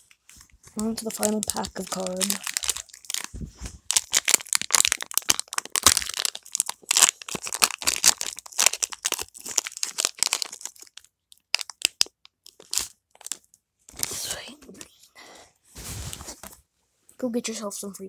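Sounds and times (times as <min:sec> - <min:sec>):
foil wrapper crinkling: 0:00.1 - 0:14.2.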